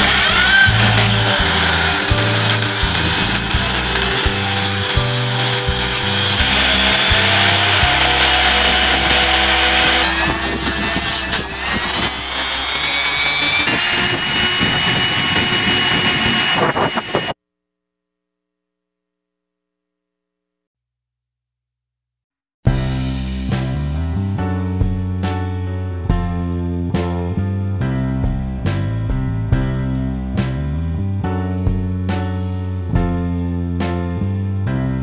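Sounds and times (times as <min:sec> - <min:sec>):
background music: 0:00.0 - 0:13.6
grinder disc rasping cardboard: 0:00.0 - 0:17.4
motor whine: 0:00.0 - 0:17.4.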